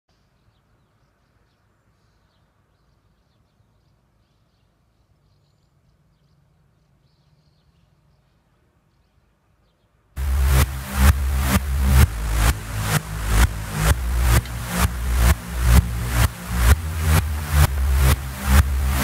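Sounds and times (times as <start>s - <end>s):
small birds chirping: 0.1s - 10.1s
electronic dance music: 10.2s - 19.0s
low steady hum: 10.2s - 19.0s.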